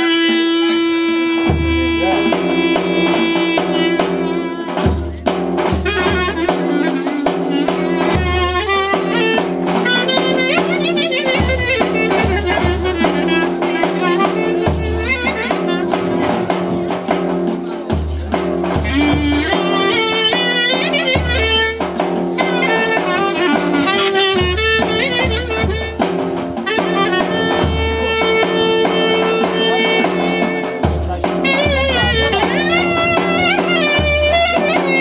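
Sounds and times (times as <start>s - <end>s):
clarinet melody: 0.0s - 17.6s, 18.7s - 35.0s
hand frame drum beat: 0.0s - 35.0s
bass drum strokes: 21.1s - 35.0s.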